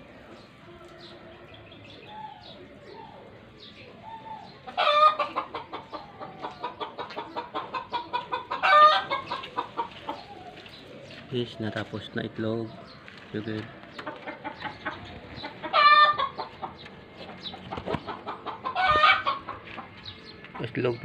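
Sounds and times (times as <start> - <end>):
hen cackling: 4.4 - 10.3, 14.1 - 16.8, 18.1 - 19.6.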